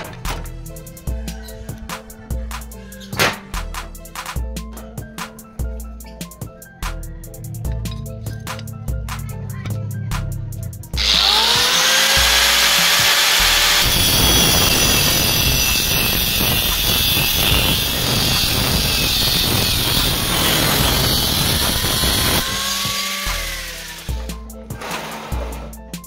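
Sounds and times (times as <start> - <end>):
background music: 0.0 - 26.0
angle grinder cutting steel: 11.0 - 25.6.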